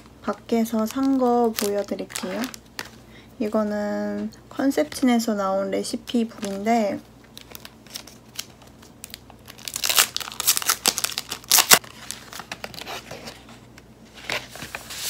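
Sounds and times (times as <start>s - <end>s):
plastic sleeve crinkling: 0.6s - 3.7s, 6.1s - 13.5s.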